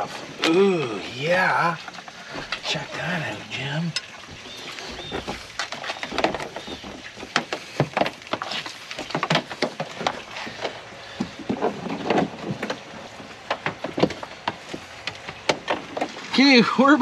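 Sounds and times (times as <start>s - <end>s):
wiring clicks knocks and rustles: 3.9s - 16.4s.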